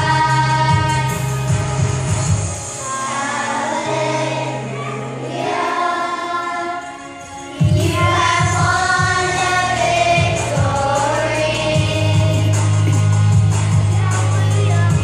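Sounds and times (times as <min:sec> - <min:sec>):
children's choir singing: 0:00.0 - 0:01.7, 0:02.5 - 0:15.0
instrumental accompaniment: 0:00.0 - 0:15.0
pulsing bass: 0:07.7 - 0:15.0.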